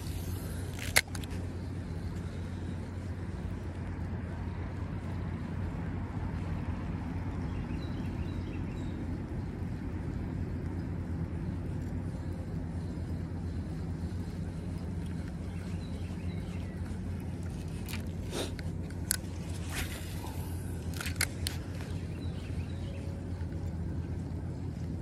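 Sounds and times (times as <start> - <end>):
fishing reel bail click: 0.0 - 1.4, 20.9 - 21.9
low outdoor rumble: 0.0 - 25.0.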